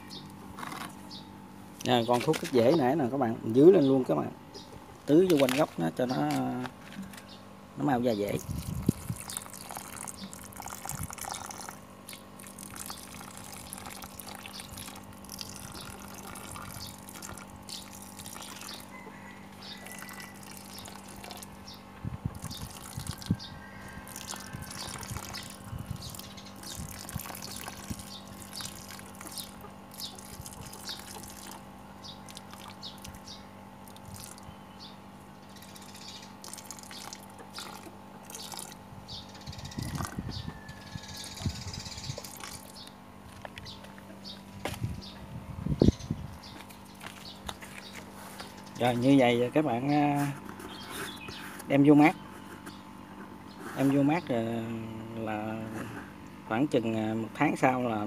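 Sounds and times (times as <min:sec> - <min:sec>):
liquid pouring onto soil: 0:08.3 - 0:18.7, 0:24.1 - 0:31.6, 0:33.9 - 0:34.4, 0:36.4 - 0:38.8, 0:42.2 - 0:42.8.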